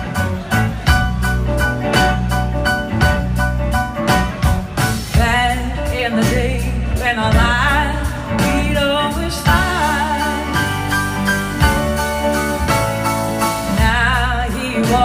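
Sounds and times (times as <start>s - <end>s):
blues-rock band playing: 0.0s - 15.0s
woman singing lead: 5.0s - 12.4s, 13.4s - 15.0s.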